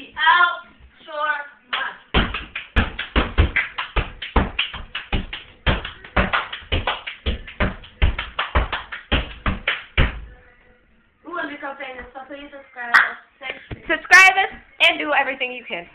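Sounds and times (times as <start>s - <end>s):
people clapping: 1.7s - 10.2s.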